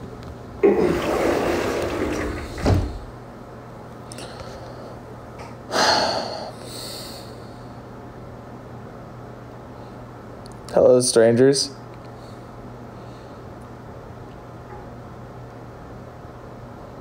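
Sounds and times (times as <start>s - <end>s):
noisy exhale: 5.7s - 7.8s.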